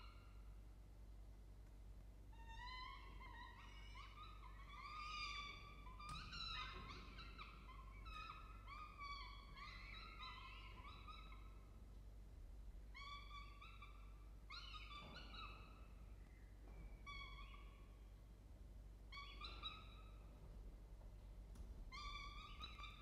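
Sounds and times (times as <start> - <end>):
low steady hum: 0.0 - 23.0.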